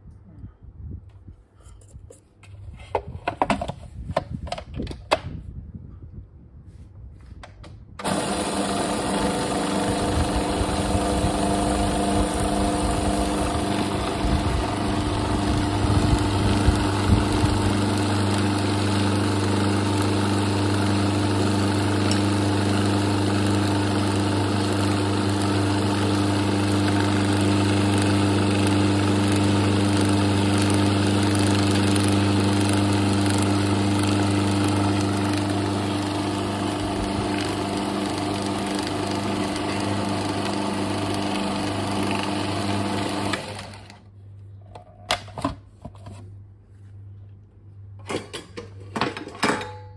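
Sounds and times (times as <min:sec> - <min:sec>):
mixer grinder motor running: 0:08.0 - 0:44.0
contents rattling in grinder: 0:08.1 - 0:43.9.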